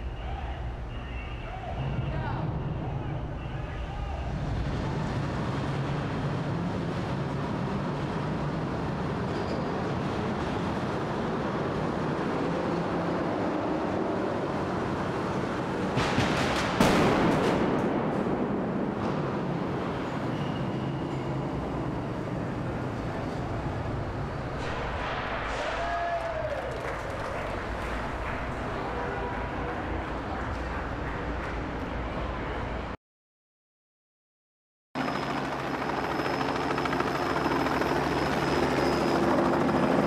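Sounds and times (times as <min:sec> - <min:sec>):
vehicle engines and tyres rumbling: 0:00.0 - 0:33.0
sharp cracks: 0:15.9 - 0:18.4
loud echoing bang: 0:15.9 - 0:19.4, 0:24.6 - 0:26.0.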